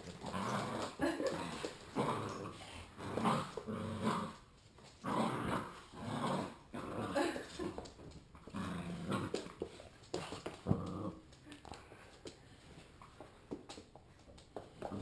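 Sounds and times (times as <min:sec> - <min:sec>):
dogs growling: 0:00.0 - 0:07.8, 0:08.4 - 0:09.5, 0:10.6 - 0:11.4.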